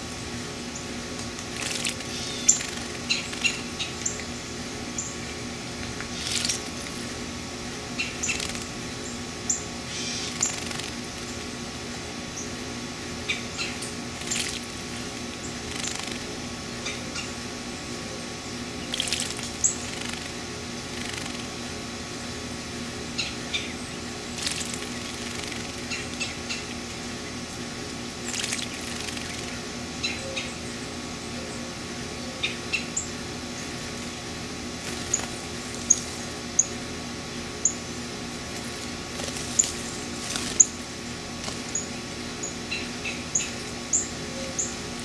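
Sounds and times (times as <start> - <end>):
steady low hum: 0.0 - 45.0
bird splashing in water: 1.5 - 3.4, 6.1 - 7.0, 14.1 - 16.3, 18.9 - 21.5, 24.3 - 26.2, 28.2 - 29.5.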